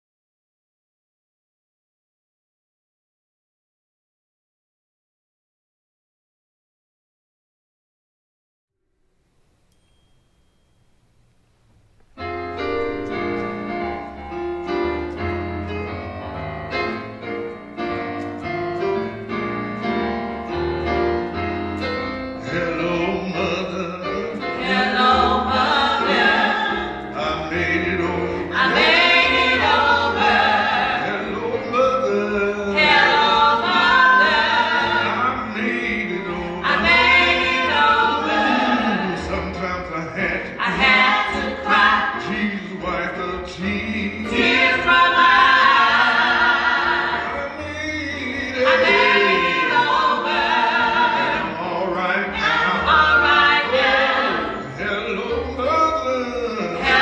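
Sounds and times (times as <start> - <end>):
keyboard accompaniment: 9.3 - 57.0
gospel group singing in harmony: 16.8 - 57.0.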